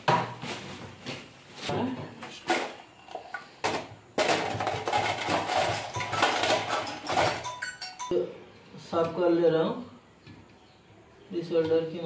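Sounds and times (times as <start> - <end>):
metal tin clattering: 3.7 - 8.1.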